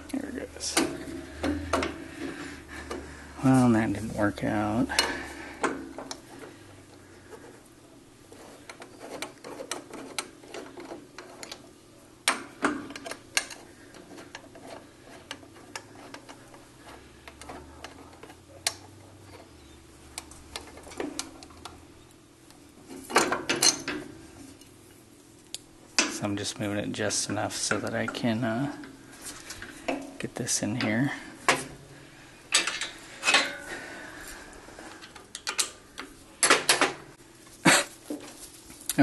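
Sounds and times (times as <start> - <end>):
metal clanks: 32.5 - 33.9.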